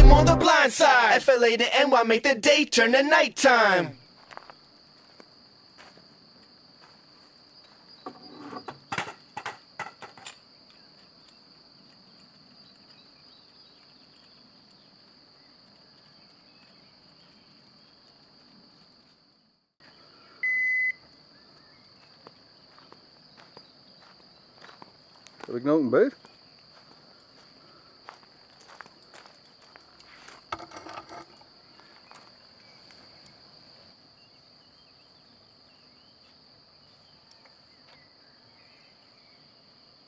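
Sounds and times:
high-pitched background trill: 0.0 - 0.9
bite alarm beep: 20.4 - 21.0.

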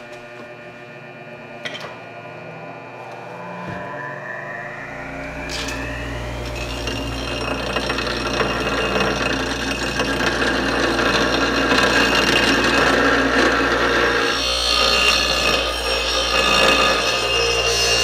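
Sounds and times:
bench grinder motor hum: 0.0 - 18.0
blade grinding on wheel: 5.4 - 18.0.

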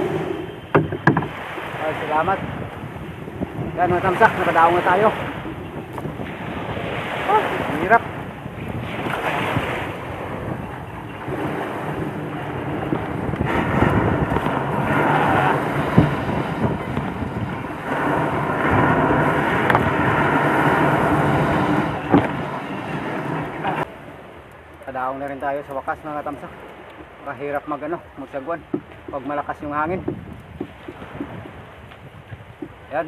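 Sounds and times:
waves breaking on a beach: 0.0 - 33.0
wind buffeting microphone: 0.0 - 33.0
sharp knocks: 0.7 - 1.4.

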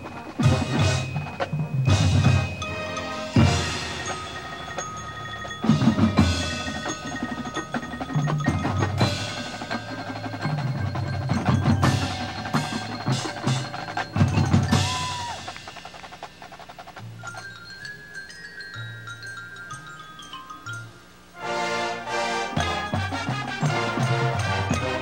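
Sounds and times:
ringing chimes and mallet instruments: 0.0 - 15.9, 17.2 - 21.4, 22.5 - 25.0
drum hits: 0.0 - 17.1.

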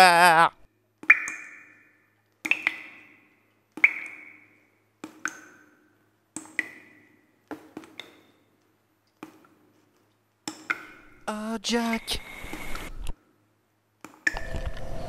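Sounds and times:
water dripping into puddle: 1.0 - 8.4, 10.4 - 11.0.

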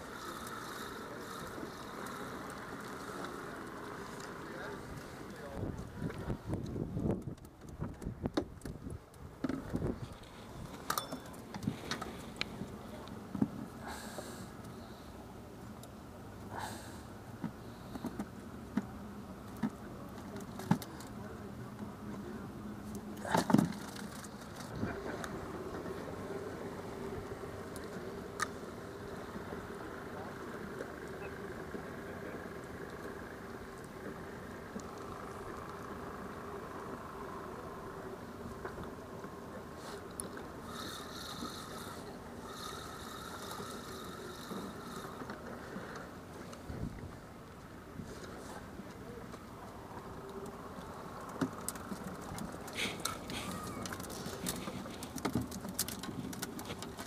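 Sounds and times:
fishing reel whirring: 0.0 - 4.3, 40.6 - 45.9
clicks and knocks handling fish: 0.0 - 14.8, 17.3 - 22.0, 22.8 - 25.4, 38.5 - 57.0
low steady hum: 0.0 - 57.0
outdoor background noise: 0.0 - 57.0.

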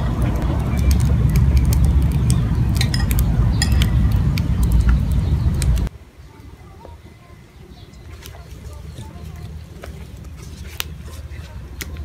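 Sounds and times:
loud steady low rumble: 0.0 - 5.9
metal spoon clinking ceramic bowls: 2.8 - 4.1.

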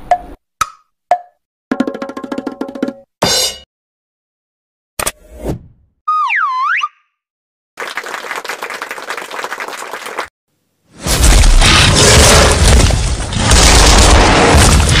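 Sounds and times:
applause: 7.8 - 10.3
explosion boom with deep rumble: 11.1 - 15.0.

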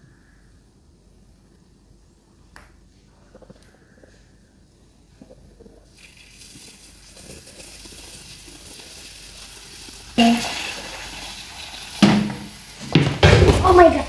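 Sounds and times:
eggs sizzling in a pan: 5.8 - 13.1
loud sizzle burst: 6.0 - 13.1.

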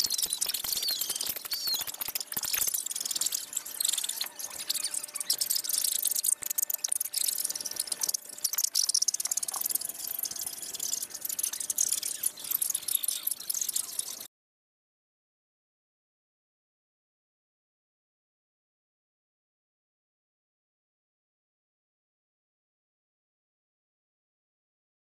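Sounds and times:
sharp clicks and rustles: 0.0 - 14.3.

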